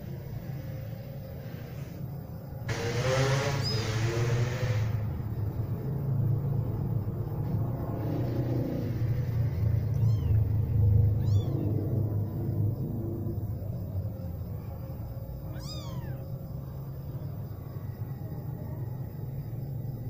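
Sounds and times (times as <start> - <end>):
kitten mews: 9.9 - 10.5, 11.1 - 11.9, 15.5 - 16.2.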